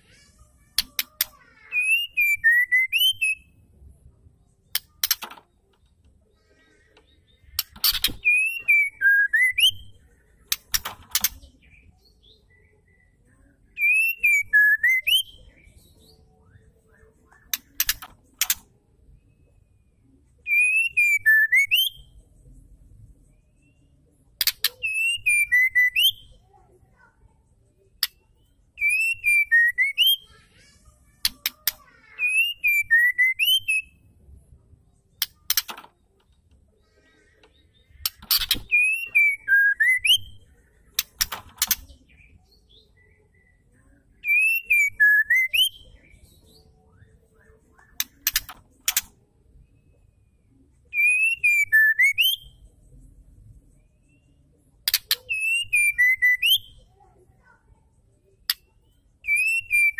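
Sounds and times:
bird whistling a phrase: 1.7 - 3.5, 24.8 - 26.3, 44.2 - 45.9.

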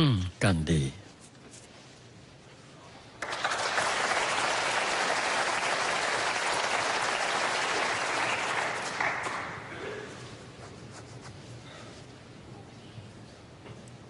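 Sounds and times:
audience applauding: 3.2 - 9.7.

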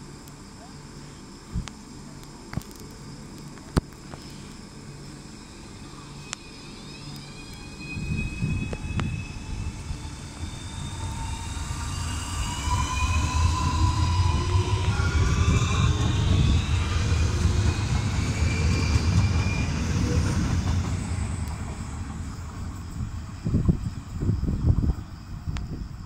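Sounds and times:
traction motor whine: 5.4 - 26.0
wheels rumbling on track: 7.9 - 26.0.

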